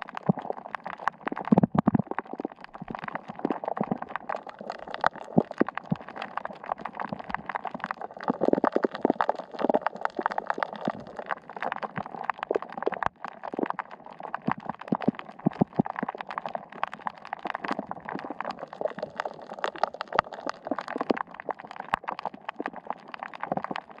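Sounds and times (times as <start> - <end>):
underwater crackling and clicking: 0.0 - 24.0.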